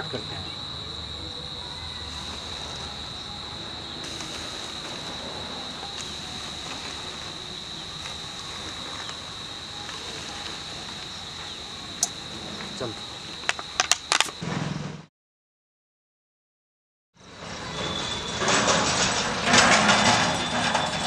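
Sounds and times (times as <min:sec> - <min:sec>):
crickets trilling: 0:00.0 - 0:14.5, 0:17.2 - 0:21.0
faint hiss: 0:01.5 - 0:13.5.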